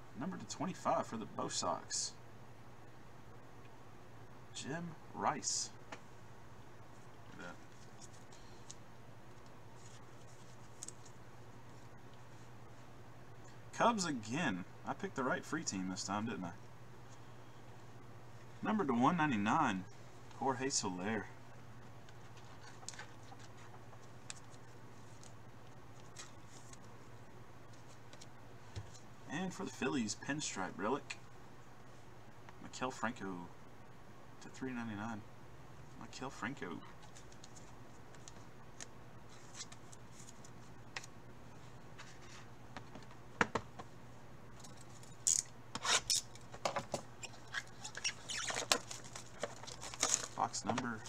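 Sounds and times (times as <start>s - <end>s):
steady low hum: 0.0s - 51.0s
cards clicking and rustling: 46.2s - 51.0s.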